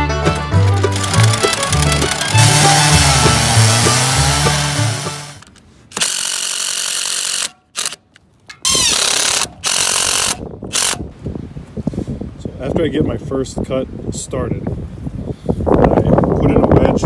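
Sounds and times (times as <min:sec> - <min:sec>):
cordless driver driving screws: 0:00.7 - 0:11.0.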